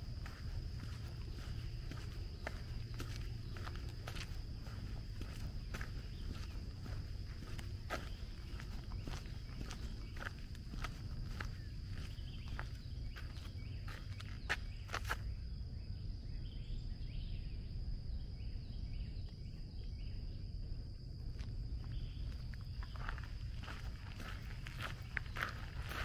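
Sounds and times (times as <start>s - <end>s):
footsteps crunching on trail: 0.0s - 15.3s, 21.1s - 26.0s
faint bird chirps: 0.8s - 20.6s.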